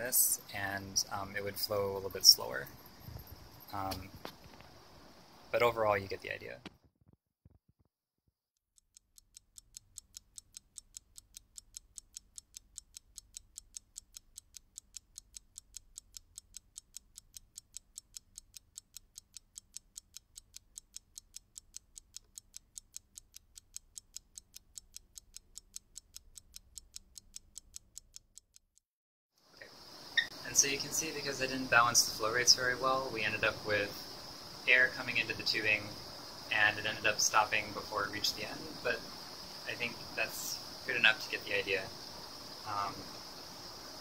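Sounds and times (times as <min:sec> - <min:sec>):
faint low hum: 0:00.0 - 0:06.7, 0:29.6 - 0:44.0
steady sharp ticking: 0:00.0 - 0:06.7, 0:08.7 - 0:28.9, 0:29.6 - 0:44.0.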